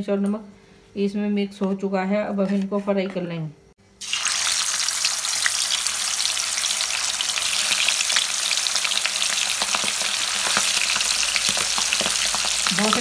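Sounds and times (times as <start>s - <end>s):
fish sizzling in hot oil: 4.0s - 13.0s.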